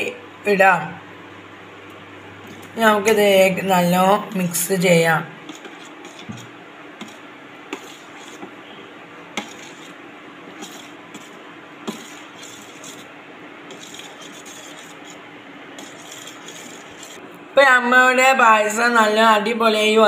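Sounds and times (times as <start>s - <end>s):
faint hum: 0.0s - 20.0s
ladle stirring thick food: 5.4s - 17.2s.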